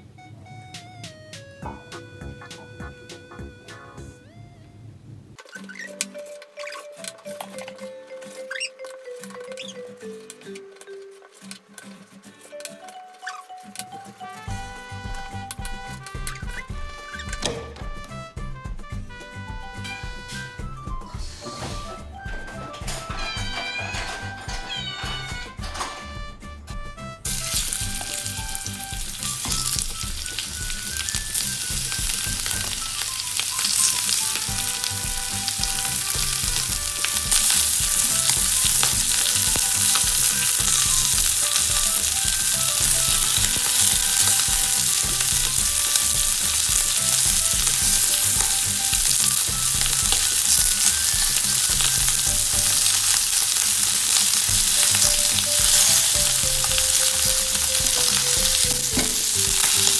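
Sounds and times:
meat sizzling in a frying pan: 27.3s - 59.9s.

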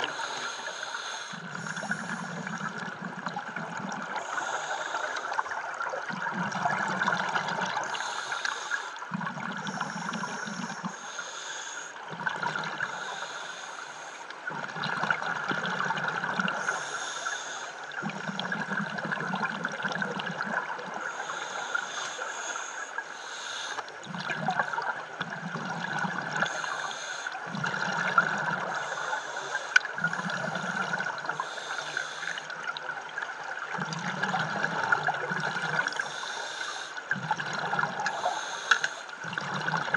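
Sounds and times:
regulator inhale hiss: 0.0s - 2.7s, 4.2s - 5.6s, 7.8s - 9.0s, 9.6s - 12.0s, 12.8s - 14.3s, 16.5s - 18.1s, 21.0s - 24.0s, 26.4s - 27.5s, 28.6s - 32.6s, 35.7s - 37.0s, 38.0s - 39.2s
exhaled bubbles rumbling: 1.4s - 4.6s, 5.4s - 8.0s, 9.0s - 11.0s, 12.0s - 13.1s, 14.4s - 16.8s, 17.9s - 21.1s, 23.9s - 26.7s, 27.4s - 29.0s, 29.8s - 31.8s, 32.4s - 36.2s, 37.0s - 38.4s, 39.2s - 39.9s.

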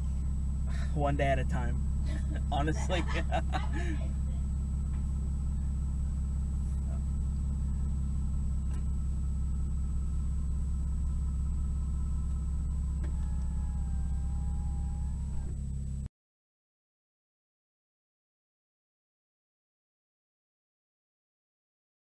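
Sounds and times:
car engine idling: 0.0s - 16.1s.

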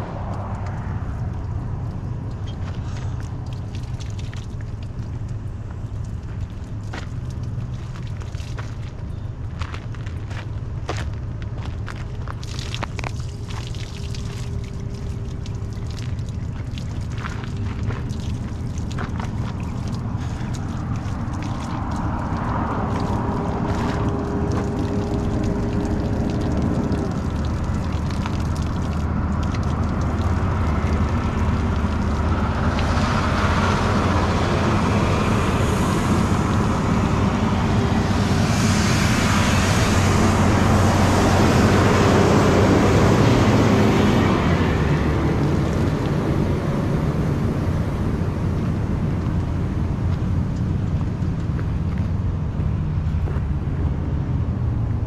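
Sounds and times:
road noise: 0.0s - 55.0s
vehicle engine rumble: 0.0s - 55.0s.

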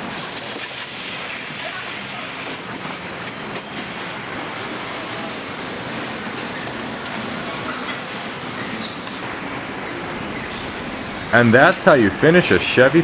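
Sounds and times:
assembly line machinery din: 0.0s - 13.0s.

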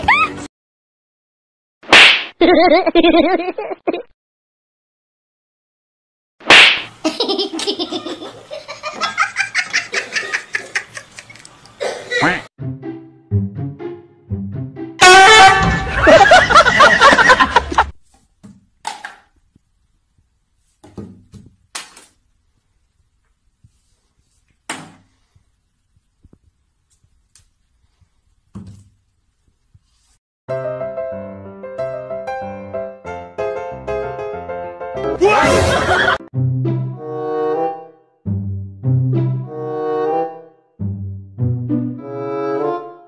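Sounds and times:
person laughing hard: 2.4s - 4.1s, 15.3s - 17.9s, 35.2s - 36.2s.

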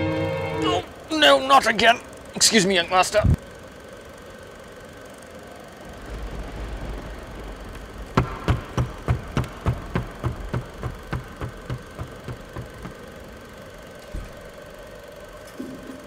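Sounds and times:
quick thumps: 7.5s - 13.2s.

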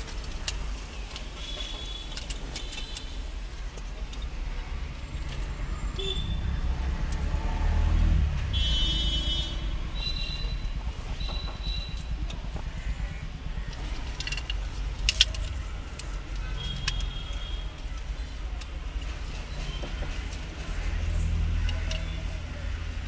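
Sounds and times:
road traffic rumble: 0.0s - 23.0s.

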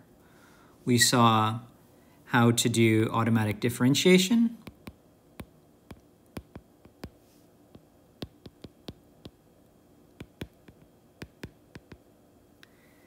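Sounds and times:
stylus tapping on glass screen: 4.6s - 9.4s, 10.2s - 12.1s.

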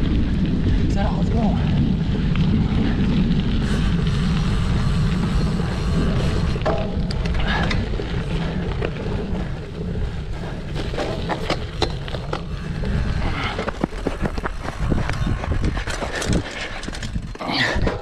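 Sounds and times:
bicycle tyres rumbling: 0.0s - 18.0s
bike clicking and rattling: 0.0s - 18.0s
wind buffeting microphone: 0.0s - 18.0s.

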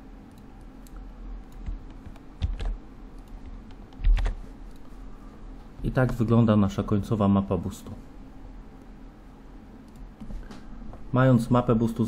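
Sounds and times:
computer keyboard clicks: 0.3s - 4.8s.

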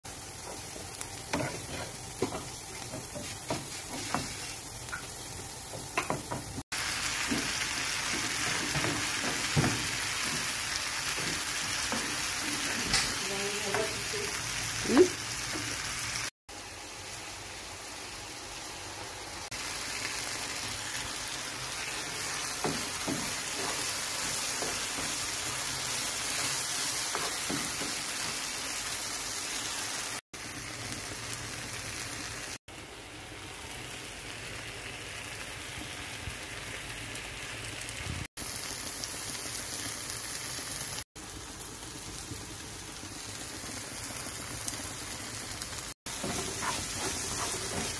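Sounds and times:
vegetables sizzling in oil: 0.0s - 47.9s
spatula knocking and scraping pan: 0.4s - 5.1s, 5.7s - 6.6s, 7.2s - 14.0s, 22.4s - 25.4s, 26.3s - 28.4s, 46.1s - 47.9s.

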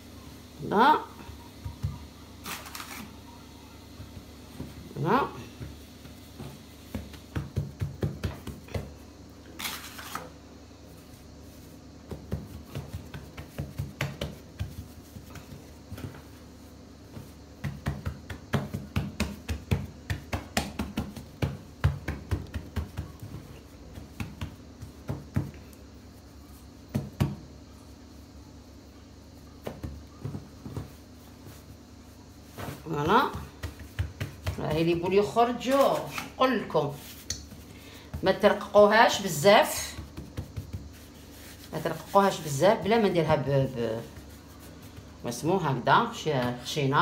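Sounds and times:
hands patting bread dough: 0.8s - 10.3s, 10.9s - 47.0s.

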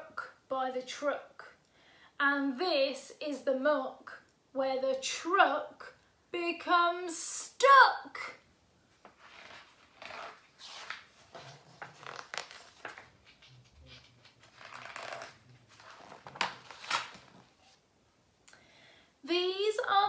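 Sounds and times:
page turning: 9.0s - 17.8s
paper rustling: 9.0s - 17.8s.

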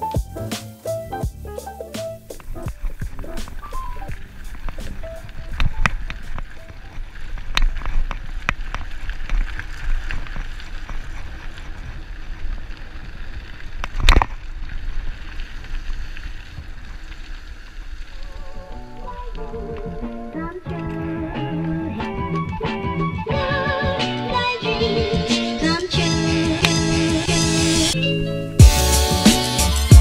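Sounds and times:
bike rattling: 0.0s - 29.2s
bike tyres crunching on gravel: 0.1s - 29.2s
wind rumble on microphone: 2.3s - 17.4s.

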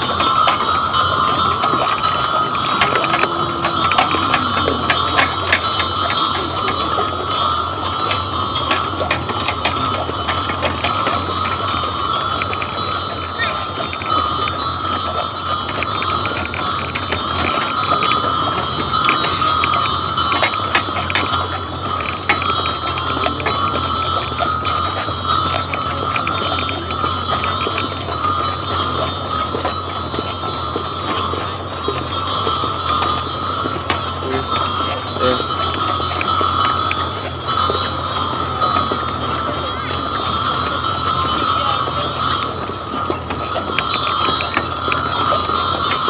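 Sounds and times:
harness bells jingling: 0.0s - 46.0s.

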